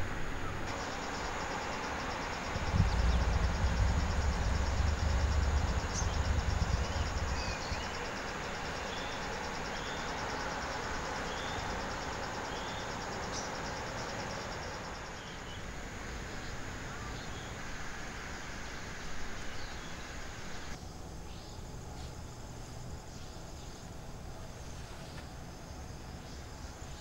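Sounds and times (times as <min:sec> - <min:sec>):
insects trilling: 0:00.0 - 0:27.0
low rumble: 0:02.4 - 0:08.2.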